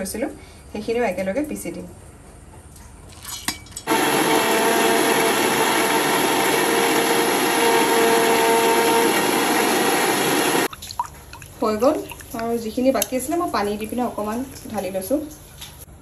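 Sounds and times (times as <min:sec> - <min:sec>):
mixer grinder motor whining: 0:03.9 - 0:10.7.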